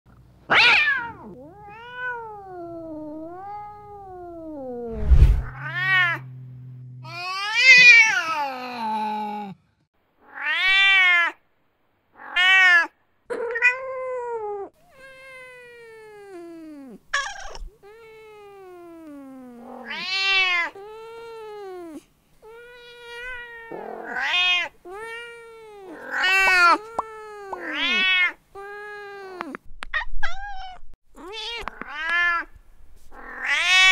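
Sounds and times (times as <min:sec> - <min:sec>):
low thump: 0:05.0 - 0:05.6
cat meowing: 0:05.4 - 0:06.3, 0:07.0 - 0:08.9, 0:10.2 - 0:11.4, 0:12.2 - 0:29.5, 0:33.2 - 0:33.9.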